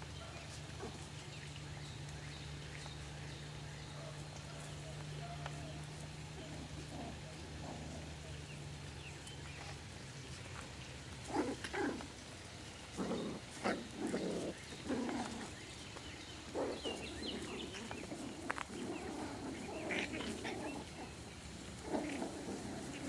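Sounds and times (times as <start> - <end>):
puppies barking: 16.4 - 23.0.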